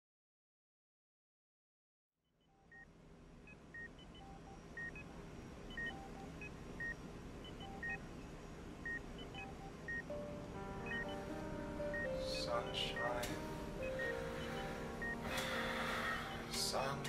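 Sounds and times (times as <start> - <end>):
low steady hum: 2.5 - 17.0
patient monitor beeping: 3.5 - 17.0.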